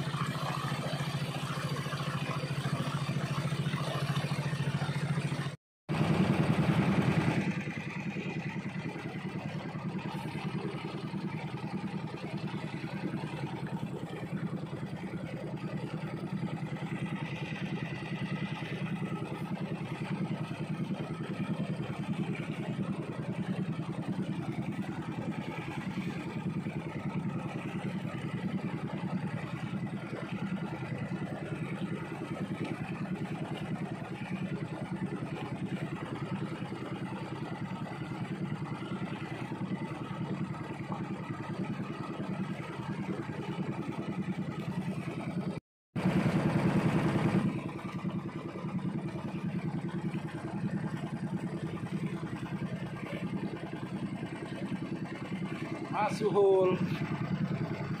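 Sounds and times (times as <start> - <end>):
water splashing: 0.0 - 7.4, 17.6 - 37.3
boat motor running: 0.0 - 58.0
water rushing along hull: 0.0 - 58.0.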